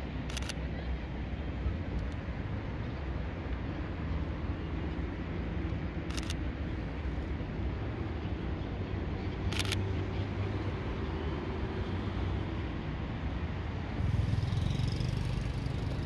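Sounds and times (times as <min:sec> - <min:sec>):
low engine hum: 0:00.0 - 0:16.0
low outdoor rumble: 0:11.6 - 0:16.0.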